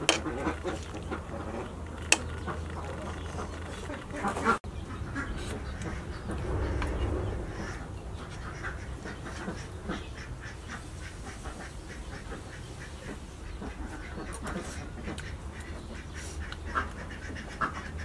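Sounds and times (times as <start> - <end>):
ducks quacking: 0.0 - 18.0
low background hum: 0.0 - 18.0.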